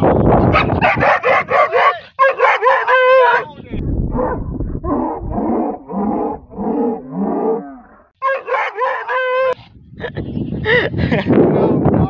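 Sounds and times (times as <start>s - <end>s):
dog barking: 0.5s - 3.5s, 8.2s - 9.3s.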